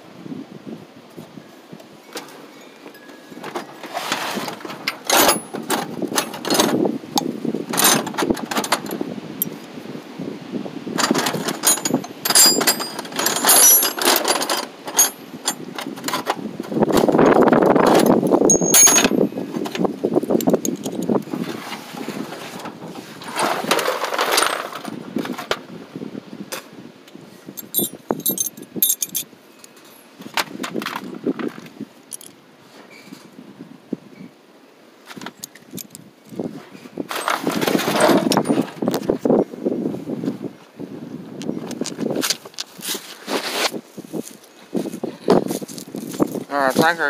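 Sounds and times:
metal tools clinking in a toolbox: 0:02.2 - 0:09.0, 0:11.0 - 0:21.3, 0:23.2 - 0:25.5, 0:27.6 - 0:30.1, 0:32.1 - 0:32.4, 0:37.1 - 0:39.0
scraping and shuffling: 0:02.2 - 0:09.0, 0:11.0 - 0:25.6, 0:27.6 - 0:29.2, 0:35.1 - 0:39.3, 0:41.6 - 0:47.0.

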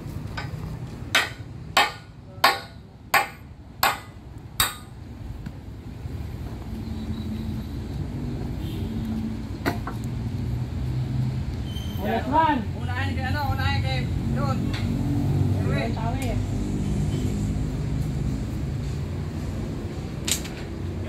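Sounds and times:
hammer striking steel: 0:00.4 - 0:05.0.

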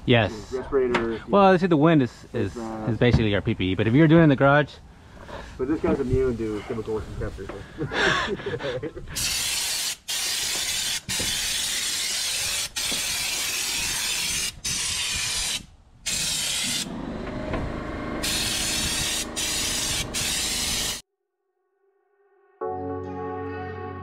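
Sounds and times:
spray gun hissing: 0:09.2 - 0:16.9, 0:18.2 - 0:21.0.

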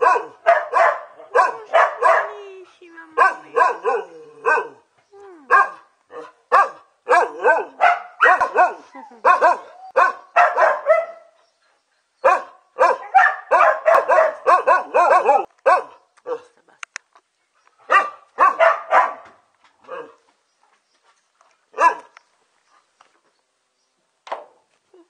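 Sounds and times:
dog barking: 0:00.0 - 0:02.3, 0:03.2 - 0:04.8, 0:05.5 - 0:11.4, 0:12.2 - 0:16.5, 0:17.9 - 0:20.2, 0:21.8 - 0:22.1.

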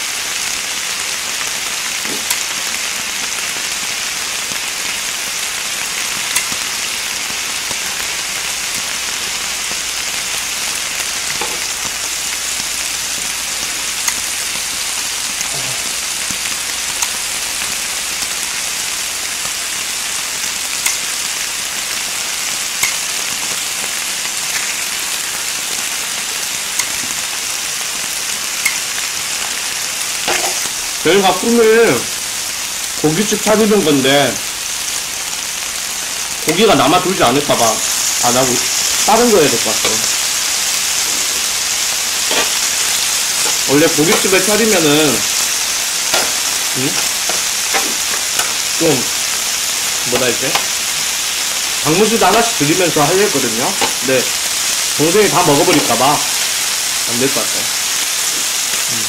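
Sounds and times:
meat sizzling on grill plate: 0:00.0 - 0:59.0
metal tongs and scissors clicking: 0:06.4 - 0:06.6, 0:20.8 - 0:21.1, 0:22.8 - 0:23.0, 0:26.8 - 0:27.0, 0:28.6 - 0:28.8, 0:42.3 - 0:42.7, 0:46.1 - 0:48.7.

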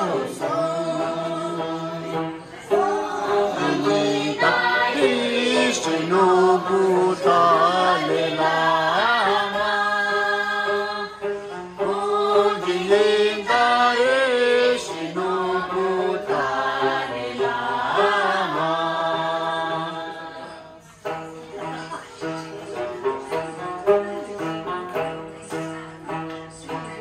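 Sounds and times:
several voices singing unaccompanied: 0:00.0 - 0:20.9.

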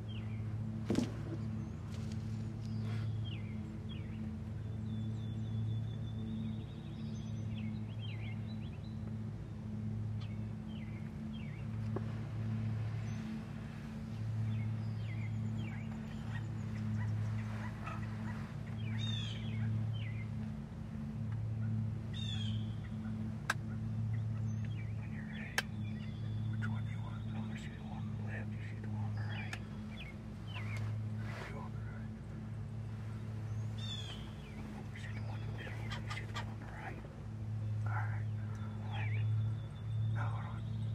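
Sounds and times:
low hum: 0:00.0 - 0:40.9
wild turkeys calling: 0:14.1 - 0:20.5, 0:32.9 - 0:37.2.

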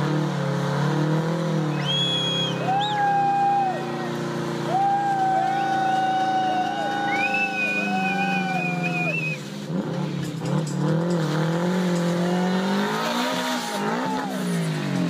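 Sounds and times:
engine revving high: 0:00.0 - 0:15.0
tyre squeal: 0:01.7 - 0:03.6.

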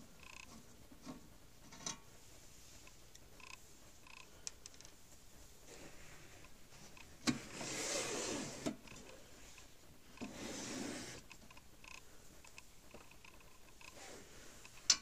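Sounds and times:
steel cabinet scraping: 0:07.2 - 0:09.0, 0:10.2 - 0:11.3.

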